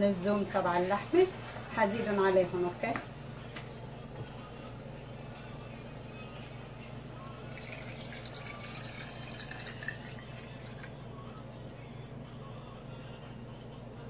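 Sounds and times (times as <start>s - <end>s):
broth pouring into a pot: 7.4s - 11.9s
glass bowl clinking: 7.5s - 11.1s.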